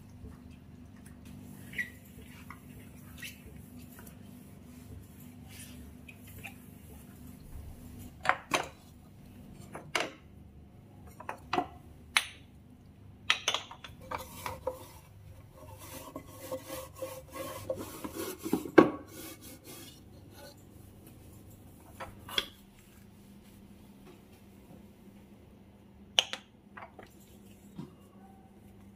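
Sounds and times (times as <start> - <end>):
cloth rubbing on wooden shelf: 14.2 - 20.0.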